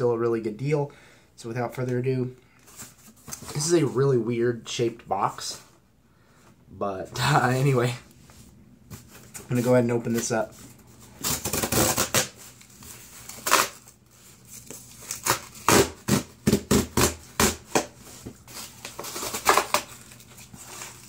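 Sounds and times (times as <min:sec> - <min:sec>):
cardboard tearing and rustling: 0:11.1 - 0:21.0.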